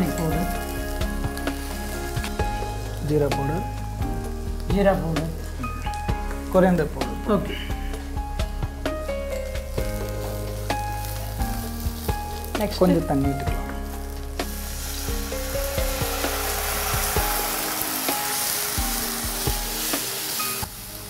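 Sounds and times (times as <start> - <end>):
loud sizzling: 0.0 - 21.0
water poured into hot pan: 13.8 - 21.0.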